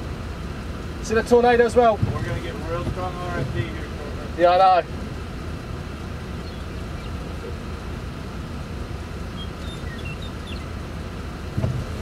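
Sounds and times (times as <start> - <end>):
wind rumble on microphone: 1.8 - 4.3, 4.9 - 12.0.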